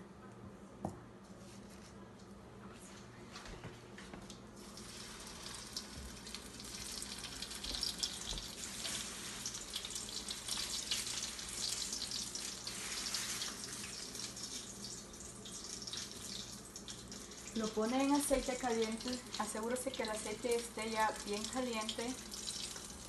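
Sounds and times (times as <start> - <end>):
food frying in hot oil: 4.6 - 23.0.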